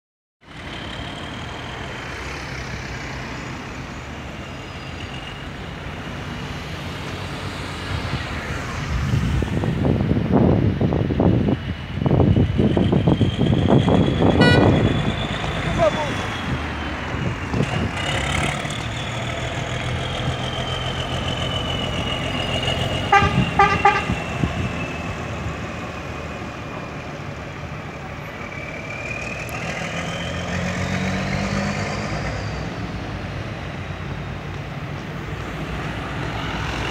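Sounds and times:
bus diesel engine: 0:00.4 - 0:36.9
high drivetrain whine: 0:00.4 - 0:36.9
horn toots: 0:14.4 - 0:15.0, 0:23.0 - 0:24.2.

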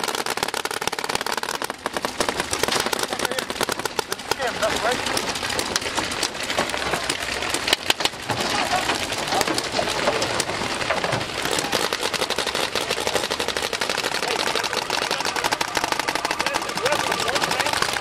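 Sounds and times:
paintball markers firing: 0:00.0 - 0:06.2, 0:11.2 - 0:18.0.

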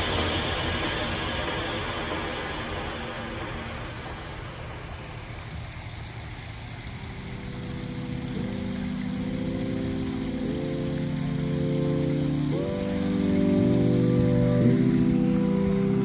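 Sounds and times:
rushing outdoor noise: 0:00.0 - 0:16.0
sustained music chords: 0:06.6 - 0:16.0.

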